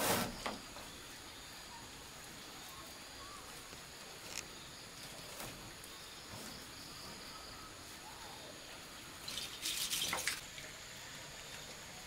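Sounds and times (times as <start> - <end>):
faint background hiss: 0.0 - 12.0.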